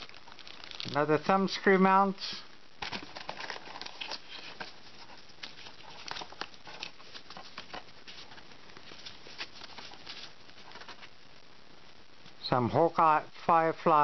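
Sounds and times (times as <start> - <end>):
plastic bags crinkling: 0.0 - 1.6, 2.8 - 11.1
cardboard box rustling: 2.8 - 11.1.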